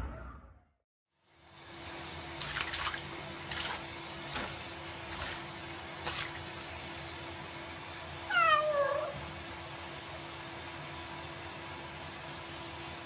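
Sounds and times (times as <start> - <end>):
small water splashes: 2.3 - 6.9
tap water running into sink: 2.4 - 6.9
cat meowing: 8.3 - 9.2.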